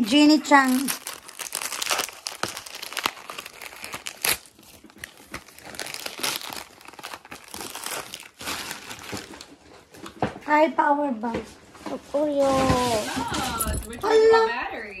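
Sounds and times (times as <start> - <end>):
wrapping crinkling and tearing: 0.0 - 10.2.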